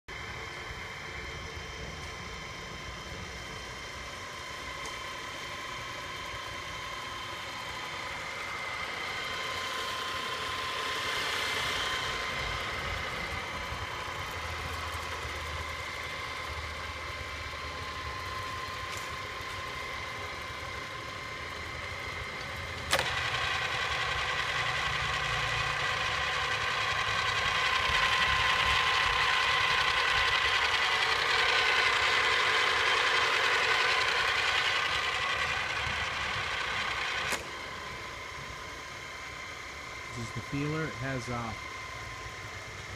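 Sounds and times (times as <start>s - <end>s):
drill press motor whine: 0.1s - 42.9s
sharp click: 37.2s - 37.5s.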